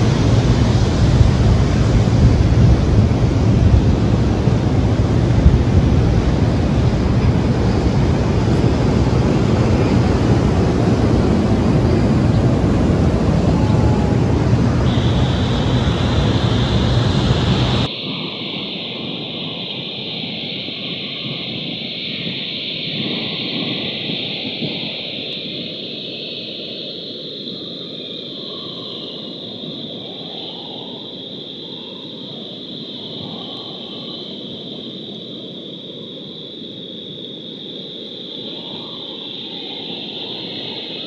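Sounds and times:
storm surf: 0.0s - 27.3s
wind rushing over microphone: 0.0s - 27.8s.

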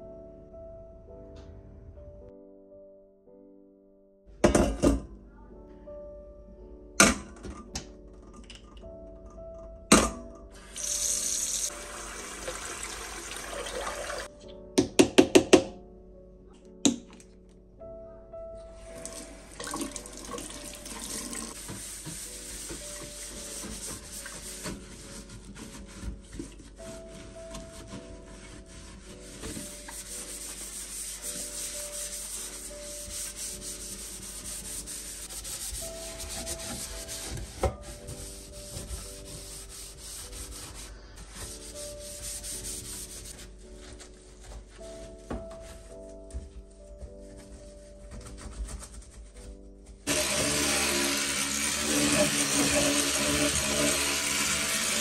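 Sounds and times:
quiet background music: 0.0s - 55.0s
sponge scrubbing metal sink: 10.7s - 14.3s, 18.8s - 44.0s, 50.1s - 55.0s.

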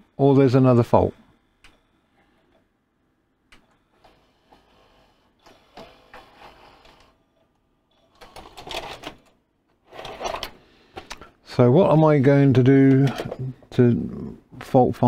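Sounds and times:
gears clicking and clunking: 7.9s - 9.4s.

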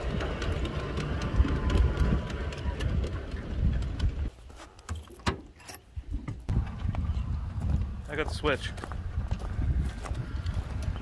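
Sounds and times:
miniature train wheels rumbling: 0.0s - 4.3s
clicks over rail joints: 0.0s - 6.4s.

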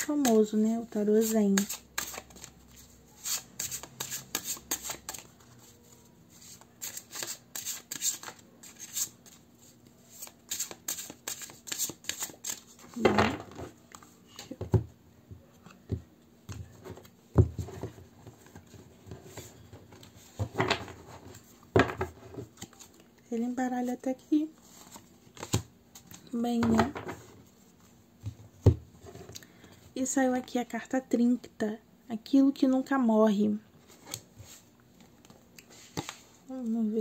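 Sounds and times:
cards being shuffled: 1.2s - 9.4s, 10.1s - 13.1s.

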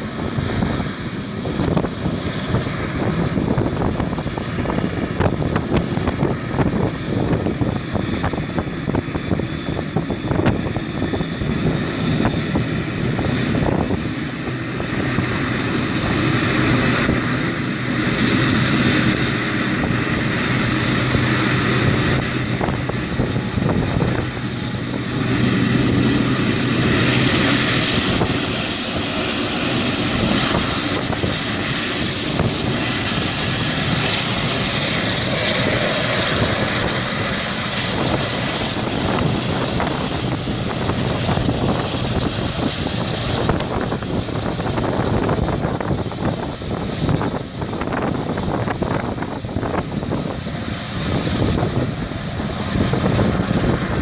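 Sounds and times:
jet engines rumbling: 0.0s - 54.0s
wind buffeting microphone: 0.0s - 54.0s.

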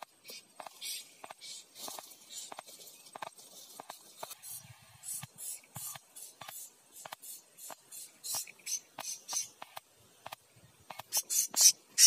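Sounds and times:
parrots chirping: 11.1s - 12.0s.

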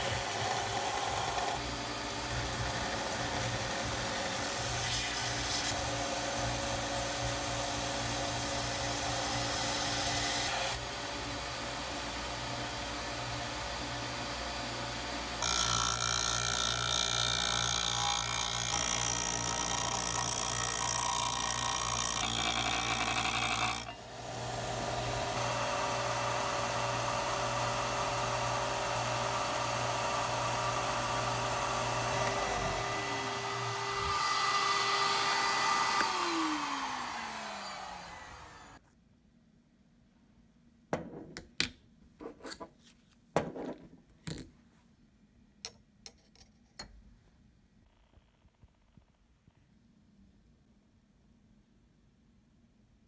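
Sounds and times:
belt sander running: 0.0s - 38.8s
motor whine winding down: 30.5s - 38.8s.

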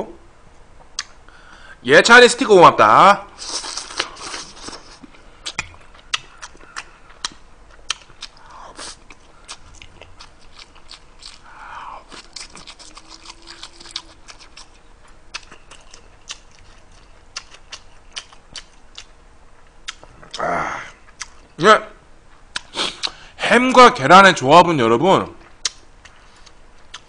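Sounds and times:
man chewing food: 0.8s - 1.6s, 3.3s - 21.6s, 22.2s - 23.3s, 25.4s - 27.0s
mouth smacks and clicks: 1.0s - 1.2s, 3.4s - 10.0s, 19.8s - 20.4s, 21.1s - 21.6s, 22.5s - 23.2s, 25.6s - 27.0s.

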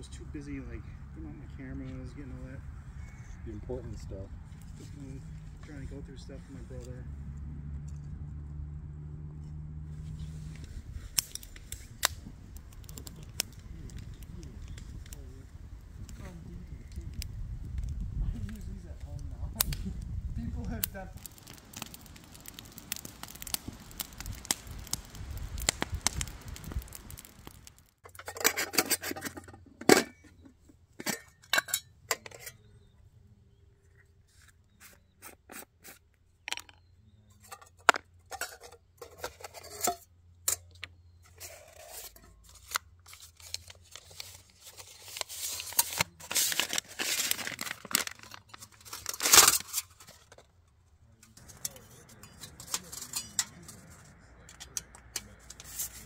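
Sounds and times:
rustling and crinkling: 33.8s - 54.2s.

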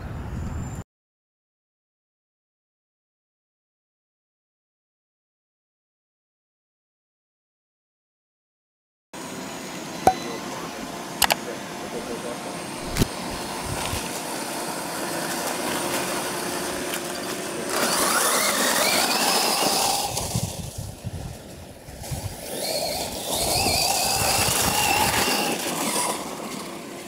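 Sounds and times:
electric motor whine: 9.2s - 27.0s
tyres rushing over leaves: 10.7s - 27.0s.

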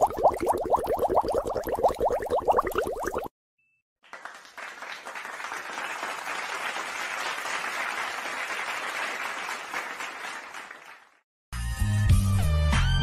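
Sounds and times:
crowd applause: 4.0s - 11.2s.

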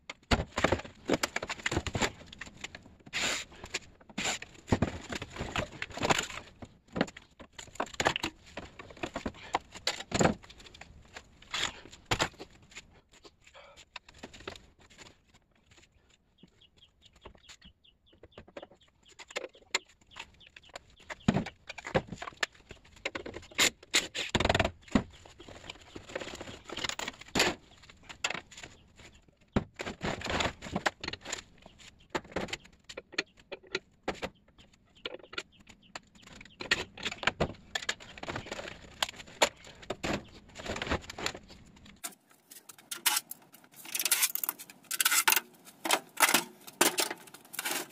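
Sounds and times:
sheet metal clinking and scraping: 42.0s - 47.9s.

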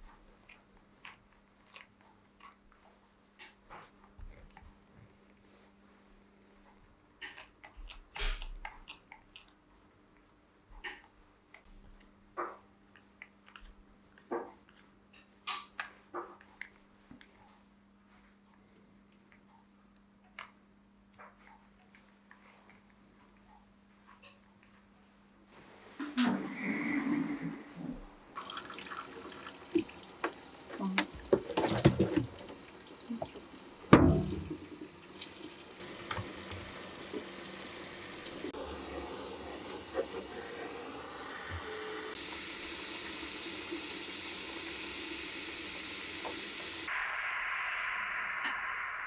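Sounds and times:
shower head spraying water: 28.4s - 47.0s.

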